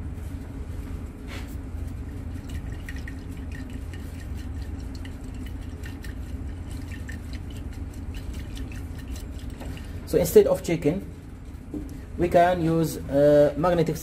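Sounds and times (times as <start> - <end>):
steady low hum: 0.0 - 14.0
liquid sloshing in glass flask: 1.9 - 10.2.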